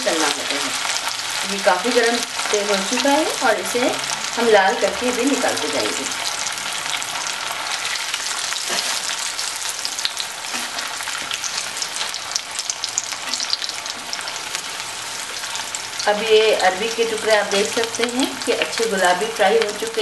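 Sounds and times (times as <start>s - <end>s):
slices deep-frying in hot oil: 0.0s - 20.0s.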